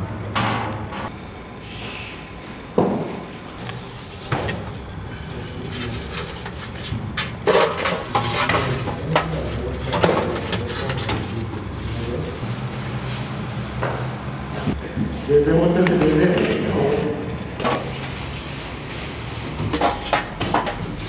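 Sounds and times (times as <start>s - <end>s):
knocks and clatter: 0.0s - 1.1s
steady hum: 0.0s - 21.0s
faint voices: 4.8s - 6.5s, 8.3s - 12.4s.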